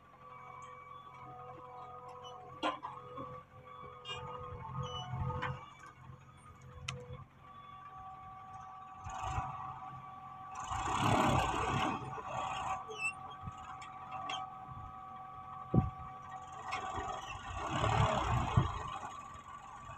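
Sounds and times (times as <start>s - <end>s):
diesel engines running: 0.0s - 19.9s
tractor moving off: 0.0s - 19.9s.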